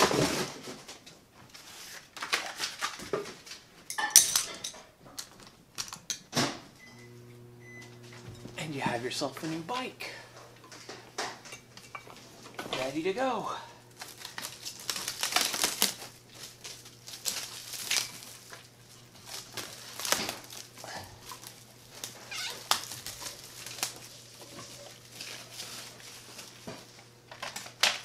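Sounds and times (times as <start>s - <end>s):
tinsel streamers rustling: 12.2s - 27.0s.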